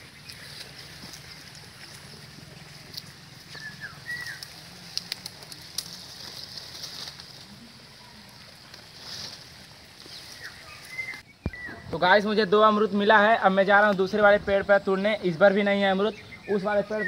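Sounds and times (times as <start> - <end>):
branches clicking: 0.0 - 11.7
bird chirps: 3.4 - 4.6, 10.0 - 11.9, 15.8 - 17.0.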